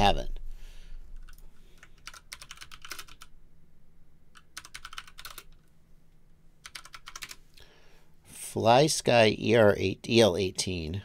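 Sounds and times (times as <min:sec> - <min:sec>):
computer keyboard typing: 0:01.2 - 0:03.3, 0:04.3 - 0:05.7, 0:06.6 - 0:07.4.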